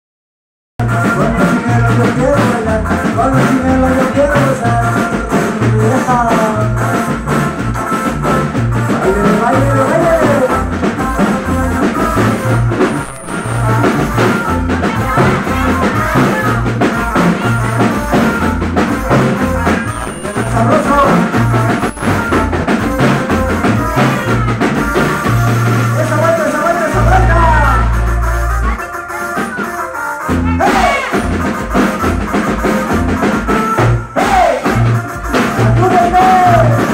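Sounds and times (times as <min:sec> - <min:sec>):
person singing: 0:00.8 - 0:07.3, 0:08.9 - 0:25.3, 0:26.6 - 0:31.3
repeating bass line: 0:00.8 - 0:29.5
drum kit: 0:00.8 - 0:36.9.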